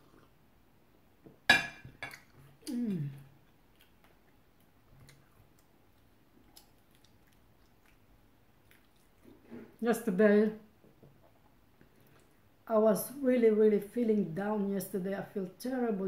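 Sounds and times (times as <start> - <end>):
chewing toast: 3.4 - 9.5.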